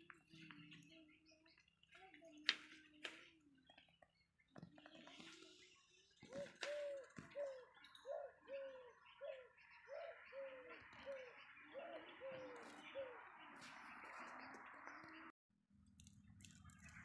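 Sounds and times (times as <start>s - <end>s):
dove cooing: 6.2s - 13.9s.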